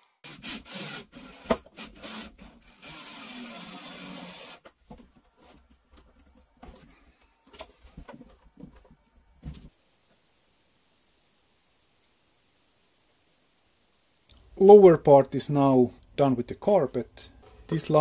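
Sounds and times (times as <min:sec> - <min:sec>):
cordless drill whirring: 0:00.3 - 0:04.7.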